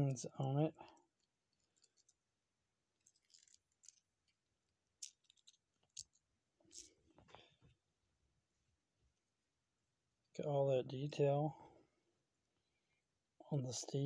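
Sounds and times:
plastic toy clicks and rustles: 3.0 - 6.9.

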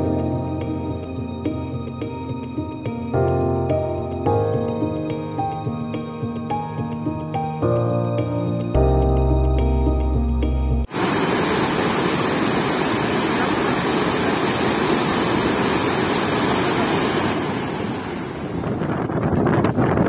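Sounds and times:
waterfall cascading over rocks: 10.9 - 18.4
wind buffeting microphone: 11.8 - 20.0.

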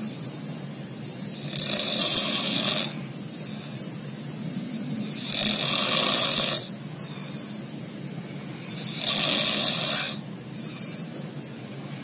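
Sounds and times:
man snoring: 1.2 - 3.1, 4.8 - 6.7, 8.6 - 10.2
quiet breathing: 2.2 - 9.0, 9.7 - 12.0.

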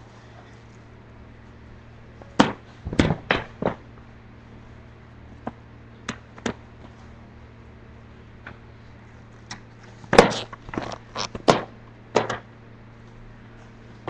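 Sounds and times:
roller skates knocking on hard floor: 10.1 - 12.4.

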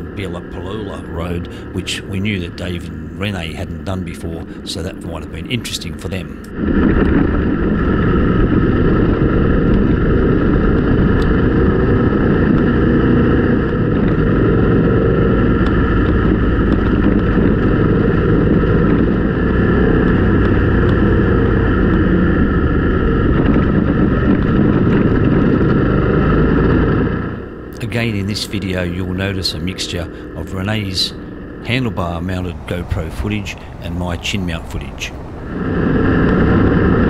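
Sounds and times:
wind on microphone: 0.0 - 29.4, 30.0 - 37.0
motorcycle engine running: 0.0 - 37.0.

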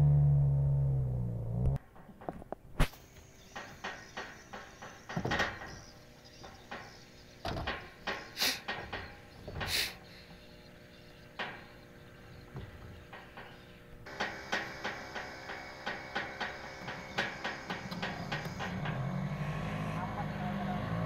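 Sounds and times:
cargo scraping on wooden deck: 3.3 - 14.5.

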